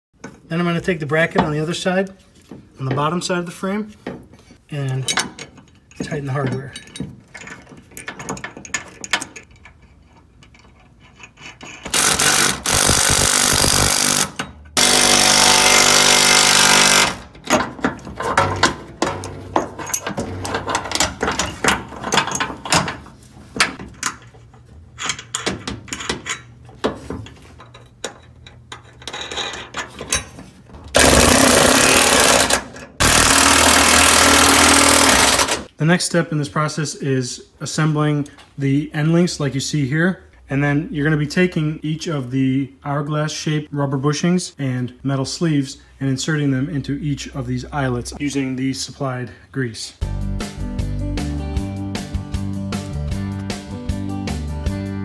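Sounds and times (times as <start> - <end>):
sockets and hardware clattering: 5.1 - 12.1, 17.2 - 31.2
impact wrench hammering: 11.8 - 23.0, 30.9 - 35.7.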